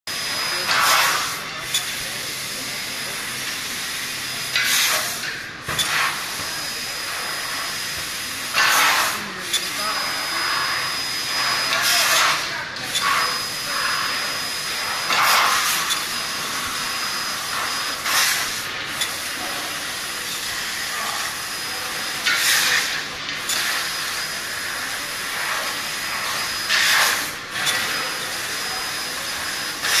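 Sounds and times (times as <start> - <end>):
faint high whine: 9.5 - 20.3.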